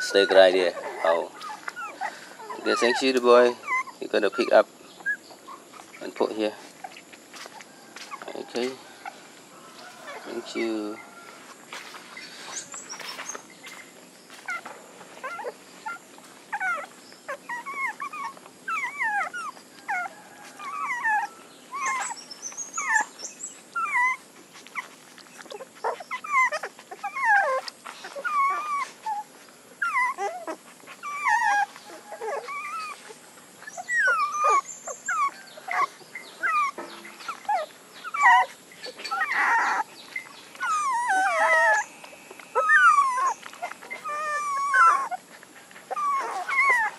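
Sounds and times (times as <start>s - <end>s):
puppies squeaking and whimpering: 0.0s - 46.9s.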